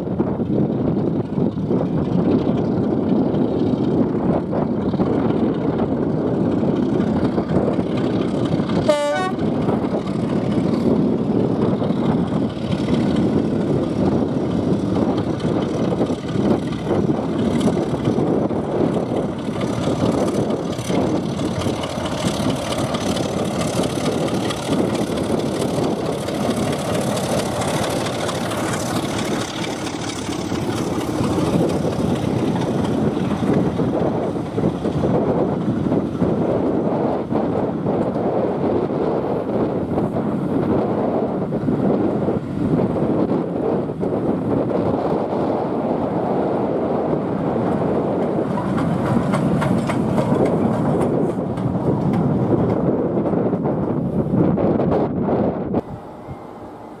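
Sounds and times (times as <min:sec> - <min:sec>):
carriages rumbling by: 0:00.0 - 0:57.0
diesel locomotive running: 0:00.0 - 0:57.0
train horn toot: 0:08.9 - 0:09.5.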